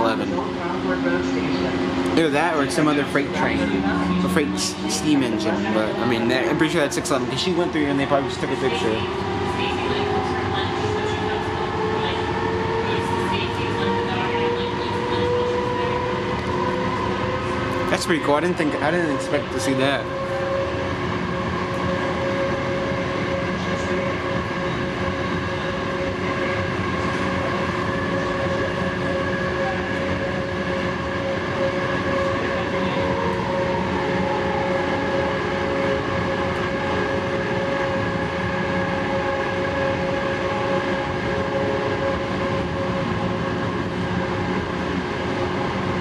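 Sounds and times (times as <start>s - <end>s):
steady whine: 0.0s - 12.2s.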